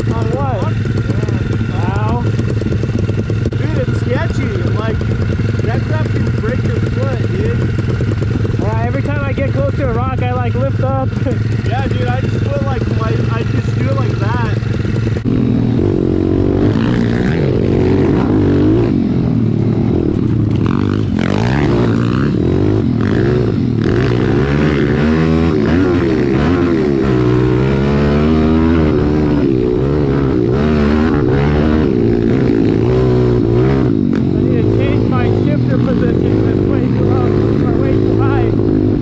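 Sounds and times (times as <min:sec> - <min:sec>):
motorbike engine revving: 0:00.0 - 0:39.0.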